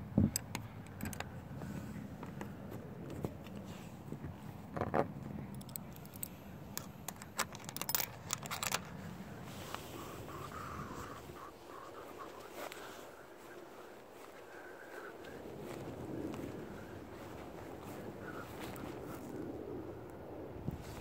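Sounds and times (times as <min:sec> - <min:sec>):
metal latch clicking and rattling: 0:00.3 - 0:01.3, 0:04.8 - 0:09.0.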